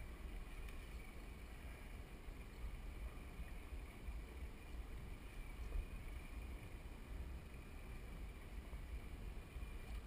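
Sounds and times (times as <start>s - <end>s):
faint hiss of sea: 0.0s - 10.0s.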